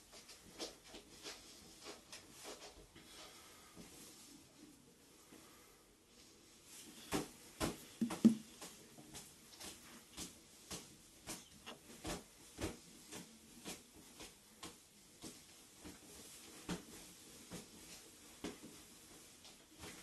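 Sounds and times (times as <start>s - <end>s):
sharp snap of kicks: 7.1s - 8.5s
dull thump: 7.6s - 8.4s.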